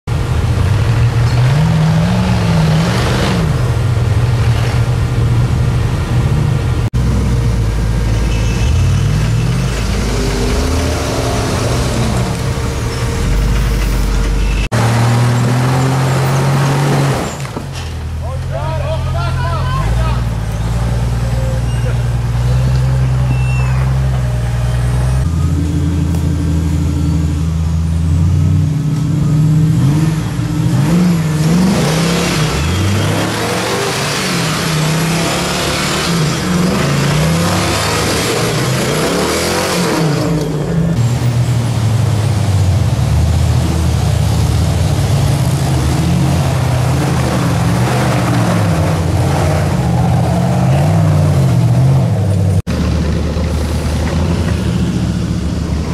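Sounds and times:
off-road engines idling and revving: 0.0 - 55.9.

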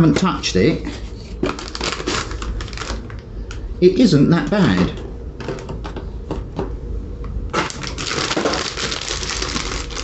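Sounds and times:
plastic bag crinkling: 1.4 - 3.2, 7.6 - 10.0.

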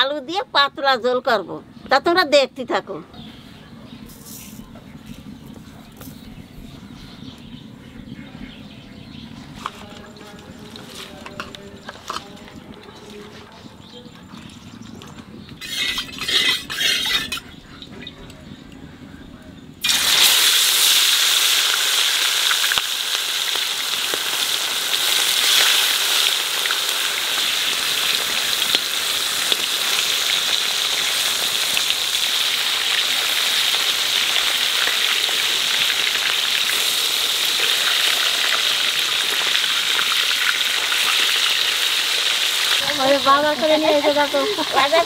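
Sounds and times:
fish frying in hot oil: 19.8 - 45.0.

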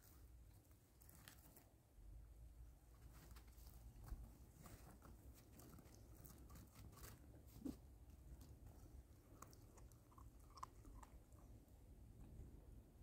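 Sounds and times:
puppy chewing twig: 4.6 - 11.7.

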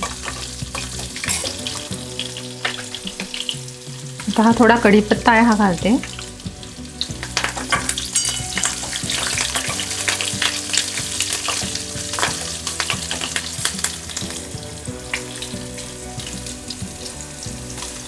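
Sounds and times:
steel spoon stirring pan: 0.0 - 3.6, 7.0 - 15.6
leaves crackling in hot oil: 0.0 - 18.0.

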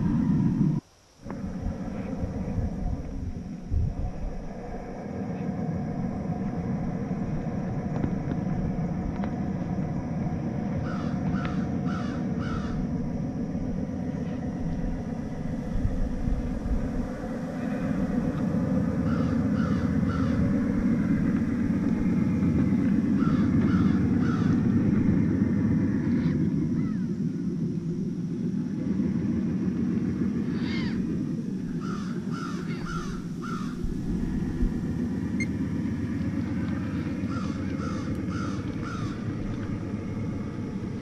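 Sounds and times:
crow cawing: 10.8 - 12.9, 19.0 - 20.6, 23.0 - 24.8, 26.2 - 27.1, 30.4 - 31.0, 31.8 - 33.8, 37.2 - 39.4.

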